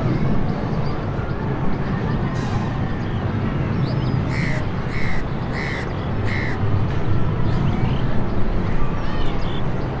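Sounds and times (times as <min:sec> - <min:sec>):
helicopters droning past: 0:00.0 - 0:09.1
harsh bird calls: 0:04.2 - 0:06.6.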